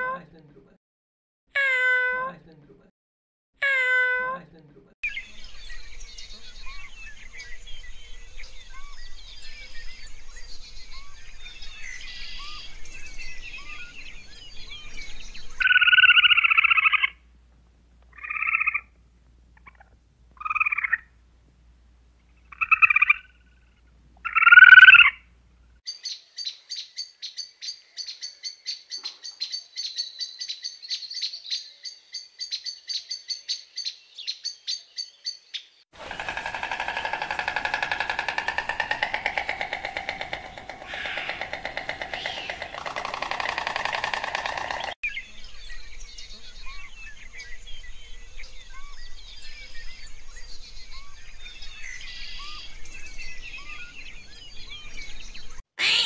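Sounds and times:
squirrel calling: 36.0s - 45.0s, 55.8s - 56.0s
hummingbird chirping: 36.2s - 45.2s.

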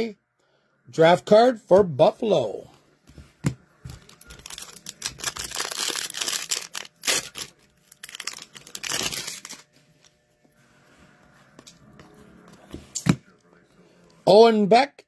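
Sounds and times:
foil wrapper tearing and crinkling: 4.1s - 9.7s.

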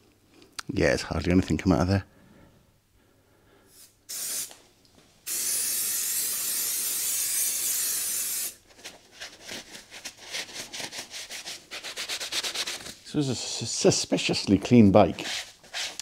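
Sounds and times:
aerosol spray hissing: 3.7s - 4.6s, 5.3s - 8.6s.

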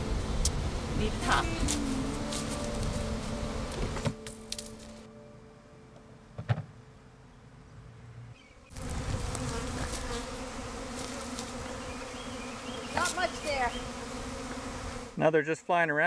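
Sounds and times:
honeybees buzzing: 0.0s - 15.2s.

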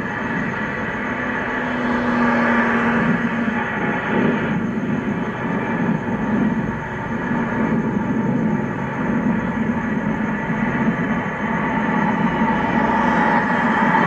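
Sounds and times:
jet engines taxiing: 0.0s - 14.0s.

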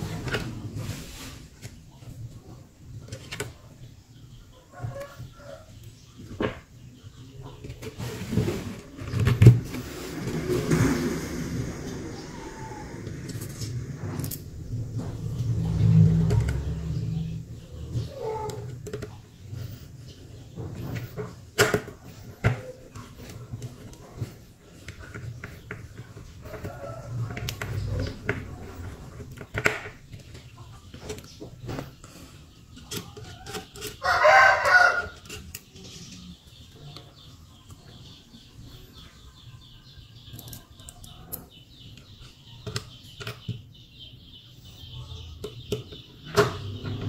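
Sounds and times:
rooster crowing: 34.0s - 35.2s.

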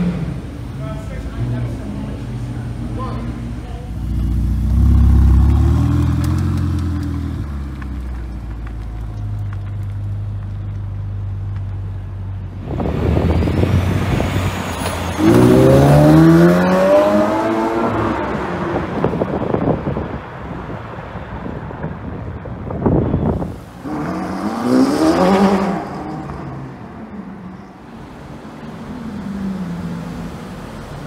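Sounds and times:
sports car engine revving and accelerating: 15.2s - 19.0s, 23.8s - 26.2s.

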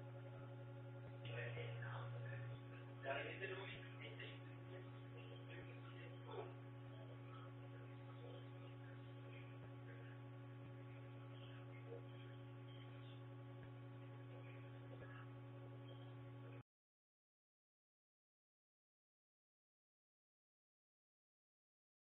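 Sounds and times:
steady electrical hum: 0.0s - 16.6s.

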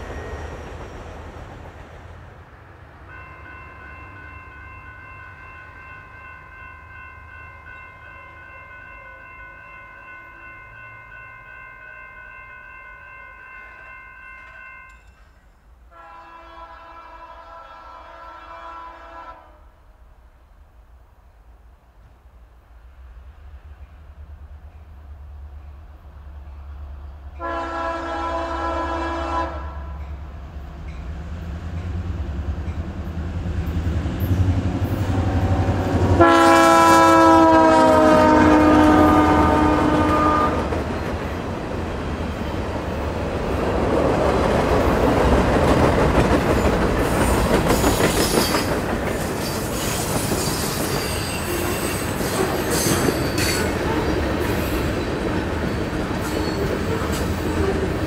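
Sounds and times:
locomotive air horn blasts: 15.9s - 19.7s, 27.4s - 30.0s, 35.2s - 40.7s
train wheels clacking on rails: 37.9s - 58.0s.

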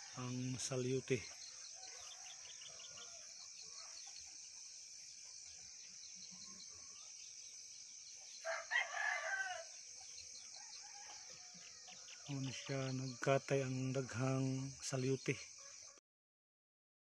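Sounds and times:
steady high-pitched hiss: 0.0s - 16.0s
rooster crowing: 1.6s - 4.0s, 8.4s - 9.8s, 10.4s - 12.7s.

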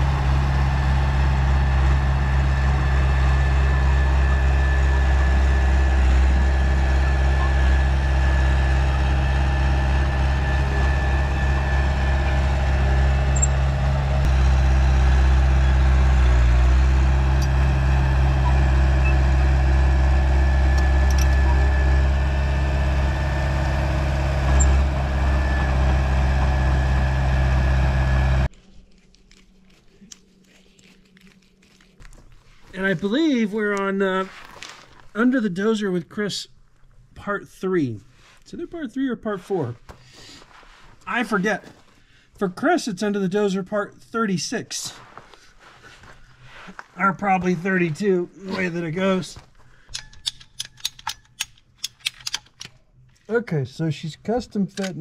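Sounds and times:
bulldozer diesel engine droning: 0.0s - 28.5s.

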